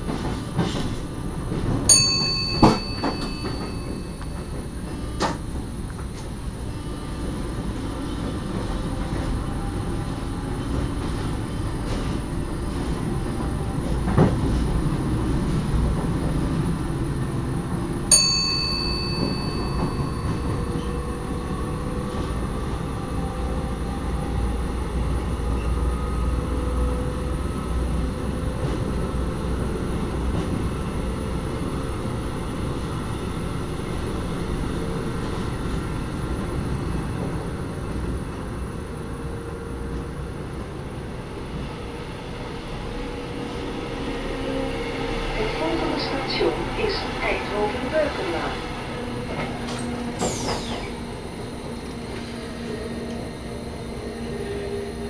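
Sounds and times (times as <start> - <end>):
train rumbling on rails: 0.0 - 55.0
ringing ding: 1.9 - 4.5, 18.1 - 21.0.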